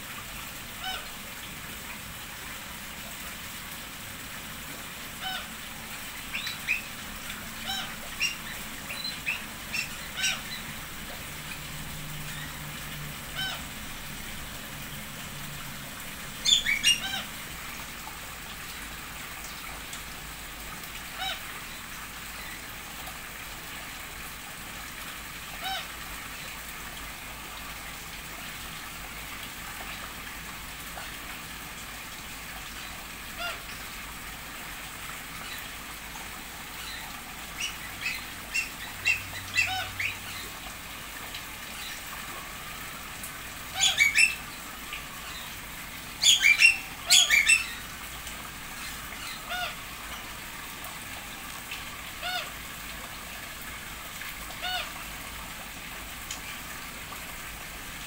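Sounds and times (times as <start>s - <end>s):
water feature hissing: 0.0s - 58.0s
birds chirping: 16.4s - 17.3s, 46.2s - 47.9s.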